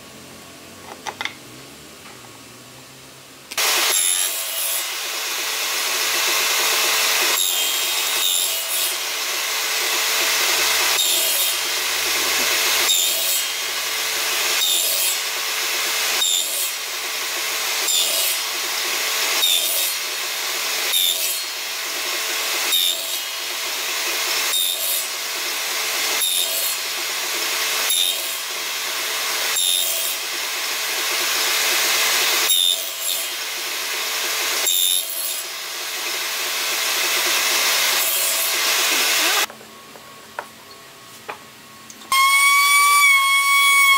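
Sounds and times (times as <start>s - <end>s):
table saw motor hum: 0.0s - 39.6s
table saw cutting wood: 3.5s - 39.5s, 42.1s - 43.9s.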